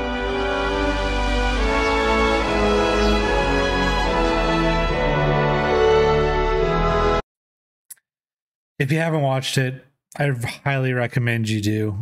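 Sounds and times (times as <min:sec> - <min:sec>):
slow orchestral music: 0:00.0 - 0:07.2.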